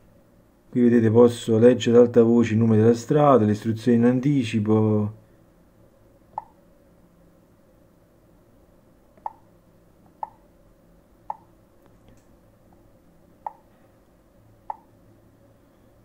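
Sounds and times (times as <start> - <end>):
finger clicks on touchscreen: 6.3 - 6.6, 9.2 - 9.4.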